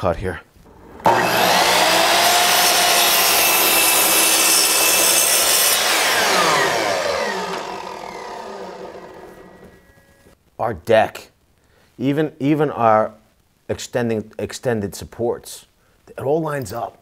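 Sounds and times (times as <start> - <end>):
miter saw cutting wood: 0.7 - 9.9
saw motor whine coasting down: 0.7 - 10.2.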